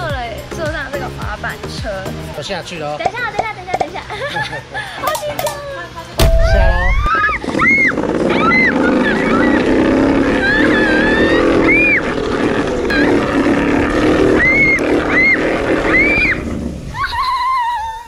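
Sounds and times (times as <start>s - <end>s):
person screaming: 6.4s - 12.0s, 14.2s - 18.0s
sled rumbling down slide: 7.0s - 18.0s.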